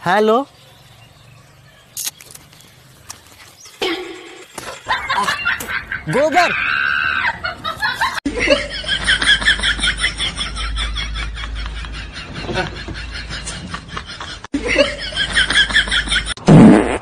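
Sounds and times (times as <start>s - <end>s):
high-pitched snickering laugh: 4.7s - 6.1s.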